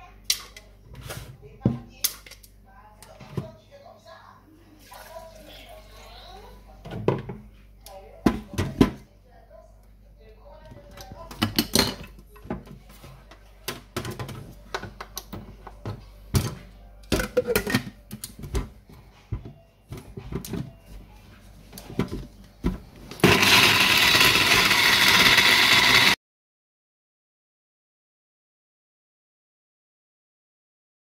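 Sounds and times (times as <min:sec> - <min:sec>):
electric blender grinding: 0:23.1 - 0:26.2
blender jar clattering: 0:23.2 - 0:26.2.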